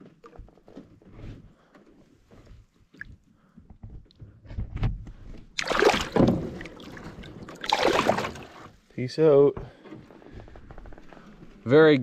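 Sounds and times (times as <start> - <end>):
loud fish splash: 5.6 - 6.9, 7.5 - 8.6
water sloshing: 5.6 - 8.9.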